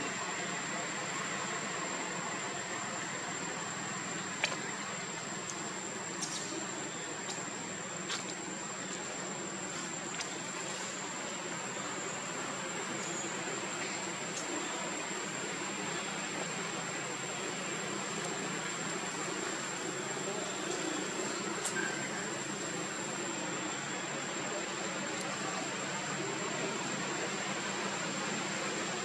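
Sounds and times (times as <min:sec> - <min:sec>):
faint clicks: 0:13.8 - 0:14.6.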